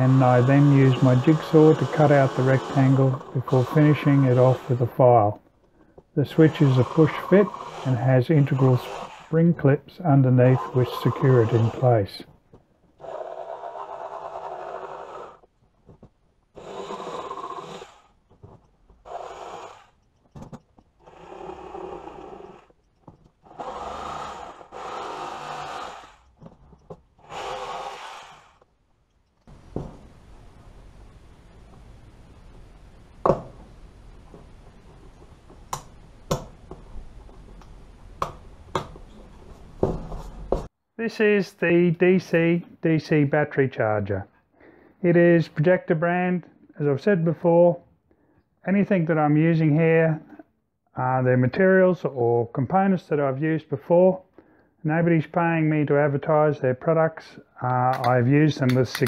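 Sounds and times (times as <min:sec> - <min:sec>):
jigsaw cutting plastic: 0:00.0 - 0:05.0, 0:06.3 - 0:09.6, 0:10.4 - 0:12.0, 0:13.0 - 0:15.4, 0:16.6 - 0:18.4, 0:23.4 - 0:26.5, 0:27.2 - 0:28.6.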